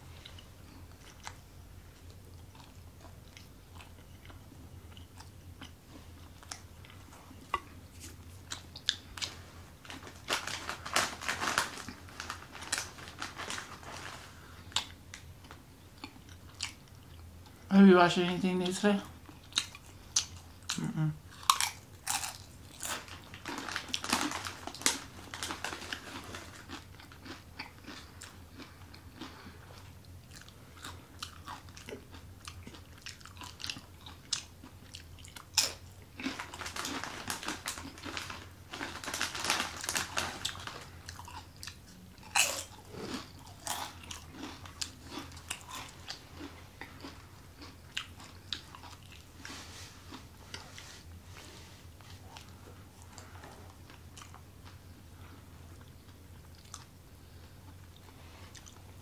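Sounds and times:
chewing: 0:00.1 - 0:09.4, 0:13.9 - 0:17.6, 0:19.2 - 0:39.2, 0:39.8 - 0:58.9
chips crunching: 0:19.6 - 0:29.4, 0:30.3 - 0:49.3.

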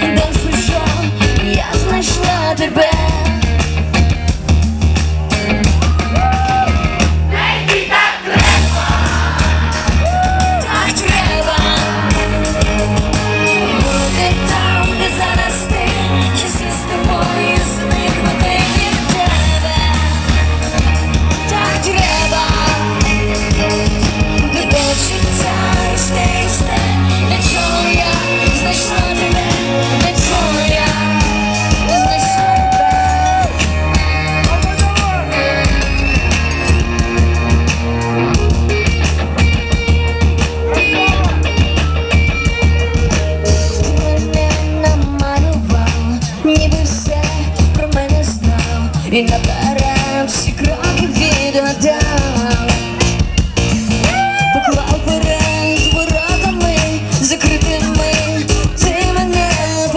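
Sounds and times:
woman singing: 0:00.0 - 0:03.6, 0:10.2 - 0:12.5, 0:13.4 - 0:20.6, 0:21.3 - 0:33.0, 0:43.5 - 0:53.2, 0:54.0 - 0:59.9
pop-rock band playing: 0:00.0 - 0:59.9.

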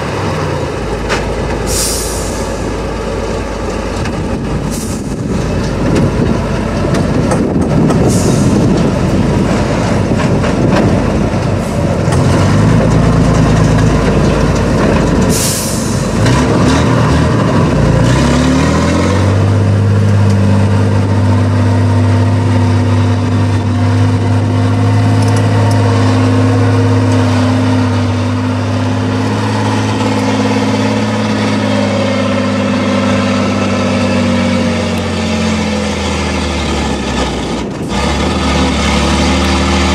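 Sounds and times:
truck diesel engine labouring: 0:00.0 - 0:39.9
short hiss: 0:01.7 - 0:02.5.

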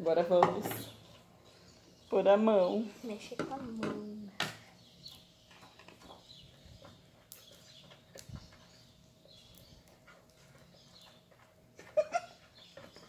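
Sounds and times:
person laughing: 0:11.8 - 0:12.4.

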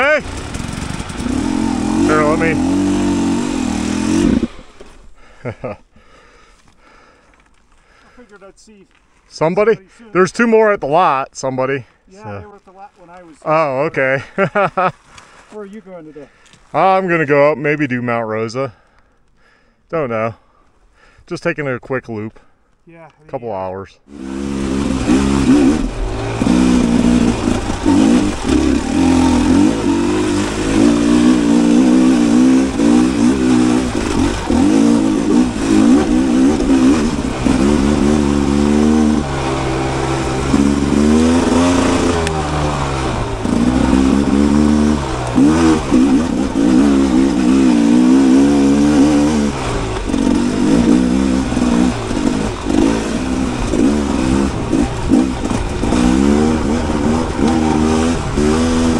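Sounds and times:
dirt bike engine revving: 0:00.0 - 0:05.4, 0:24.1 - 0:58.9.

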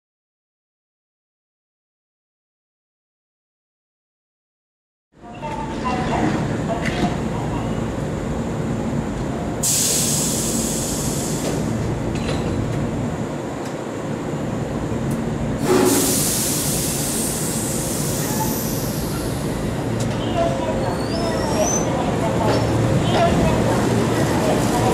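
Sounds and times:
compressed air hiss: 0:09.6 - 0:11.7, 0:15.6 - 0:19.5.

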